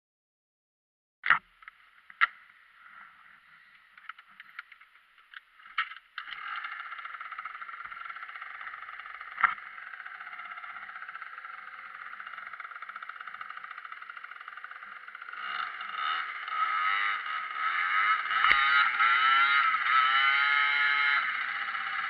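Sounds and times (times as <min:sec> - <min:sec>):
scooter engine running: 0:05.7 - 0:22.0.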